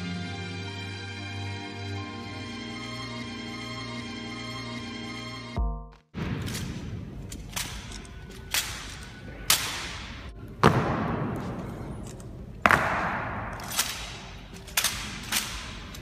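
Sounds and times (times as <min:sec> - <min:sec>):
rifles being struck: 0:06.2 - 0:16.0.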